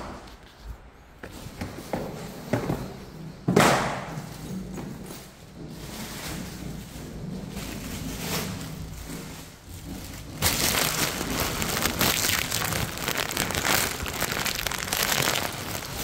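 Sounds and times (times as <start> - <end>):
crinkling crackling rustle: 5.6 - 16.0.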